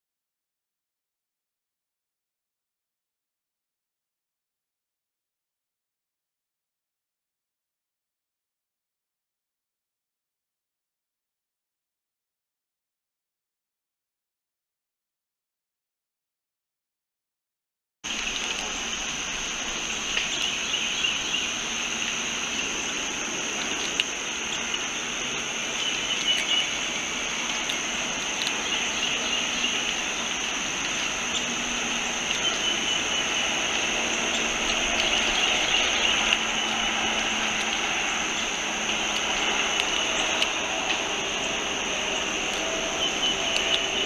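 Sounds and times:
insects droning and buzzing: 18.1s - 44.0s
squirrel gnawing clicks: 23.5s - 44.0s.

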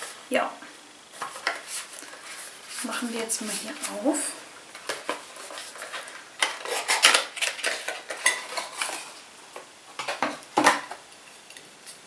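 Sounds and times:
packaging rustling: 1.1s - 9.3s.

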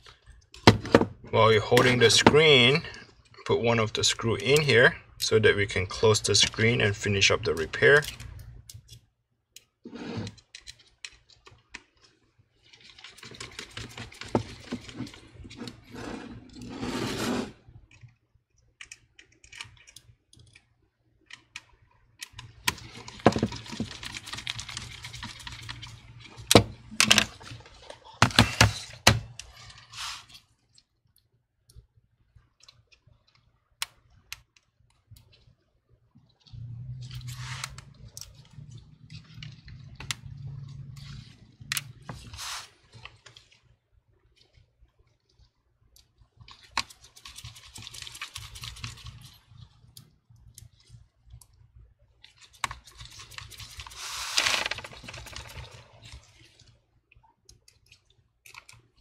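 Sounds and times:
hands handling laptop parts: 21.3s - 31.0s, 52.2s - 56.2s.

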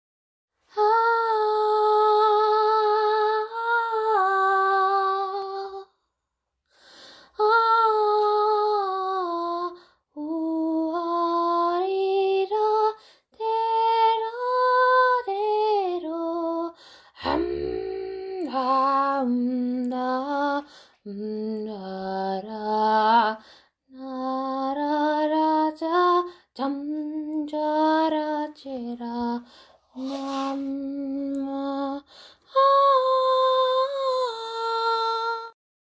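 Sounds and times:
singer breathing: 6.7s - 7.4s, 16.8s - 17.2s, 29.5s - 30.6s, 32.1s - 32.5s
person singing wordless notes: 17.2s - 18.6s, 30.0s - 30.9s.

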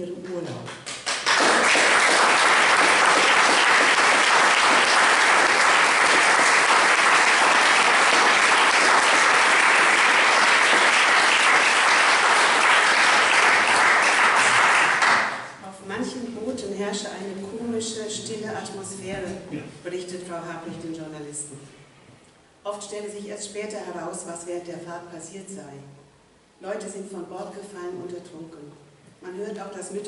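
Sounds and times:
audience applauding: 0.8s - 15.6s.

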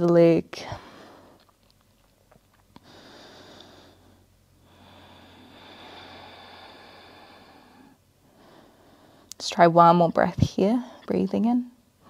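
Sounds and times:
woman breathing: 0.6s - 1.6s, 2.8s - 9.4s.

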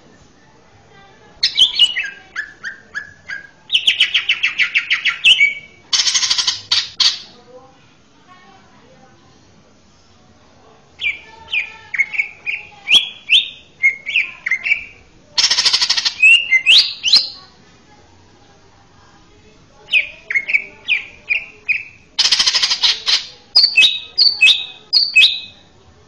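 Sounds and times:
bird whistling song: 1.4s - 7.3s, 11.0s - 17.4s, 19.9s - 25.6s
bird harsh rattle: 5.9s - 7.3s, 15.4s - 17.1s, 21.7s - 23.4s.

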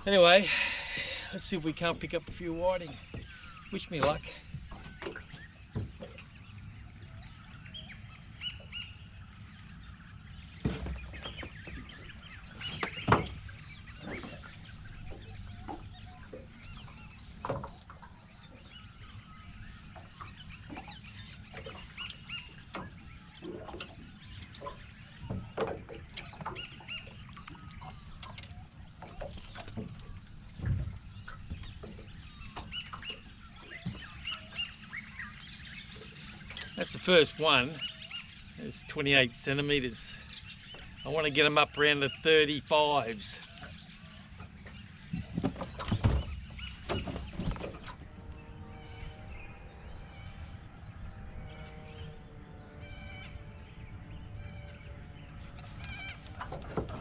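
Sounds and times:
birds calling: 0.0s - 57.0s
low steady rumble: 46.3s - 57.0s.

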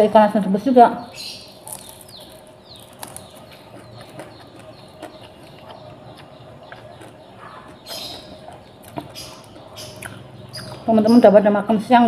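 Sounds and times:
person chewing: 1.5s - 10.9s
mouth smacks and clicks: 1.6s - 10.9s.

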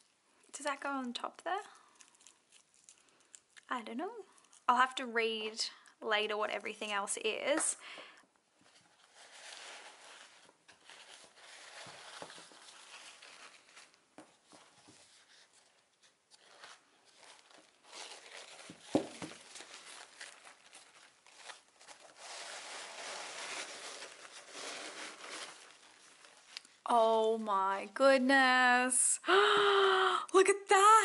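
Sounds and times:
tissue paper crinkling: 0.9s - 3.6s, 8.6s - 27.6s.

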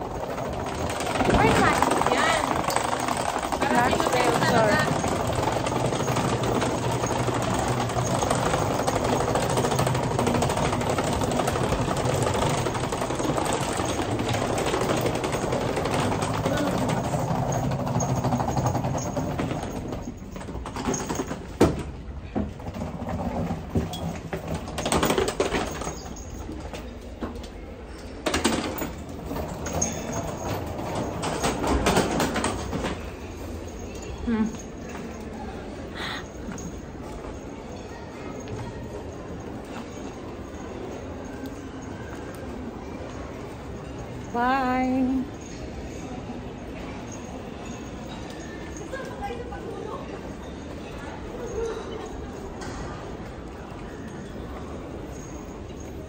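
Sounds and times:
scattered clicks and knocks: 0.0s - 33.8s
luggage wheels rattling on tiles: 0.0s - 56.0s.

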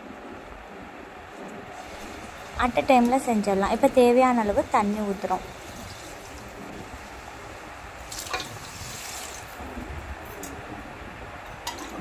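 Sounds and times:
water pouring into pot: 5.4s - 9.6s.

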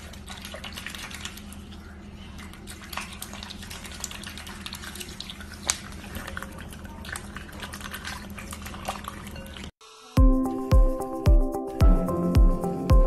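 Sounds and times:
duck splashing in water: 0.0s - 9.7s.

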